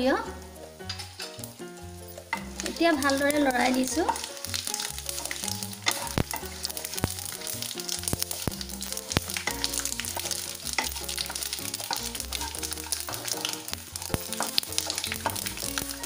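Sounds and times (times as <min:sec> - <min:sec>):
background music: 0:00.0 - 0:16.0
spices sizzling in oil: 0:00.0 - 0:16.0
spatula stirring in pan: 0:00.3 - 0:16.0
spatula tapping pan: 0:00.4 - 0:16.0.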